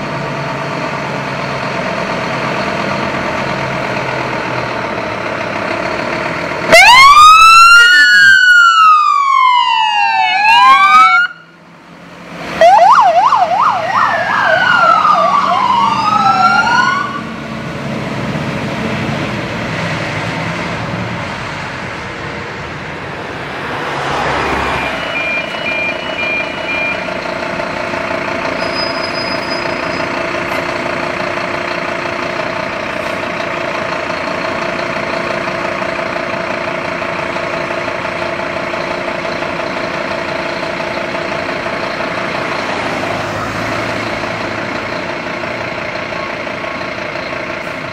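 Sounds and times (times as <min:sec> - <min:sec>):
diesel engine idling: 0:00.0 - 0:47.9
electronic siren wailing and yelping: 0:06.7 - 0:11.5, 0:12.6 - 0:17.2.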